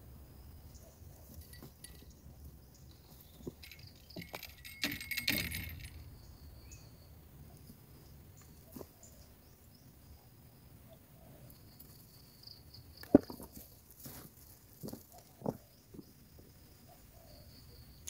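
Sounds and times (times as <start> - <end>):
fishing tackle clicking and rattling: 3.4 - 6.2.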